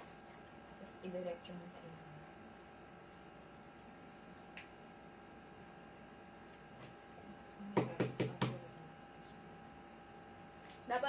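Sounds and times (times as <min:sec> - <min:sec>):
egg knocking on table: 0:07.8 - 0:08.6.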